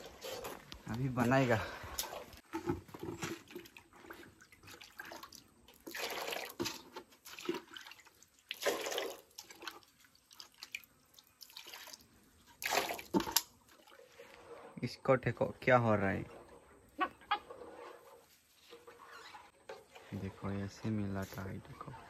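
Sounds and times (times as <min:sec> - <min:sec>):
liquid pouring and splashing: 0:00.0 - 0:14.8.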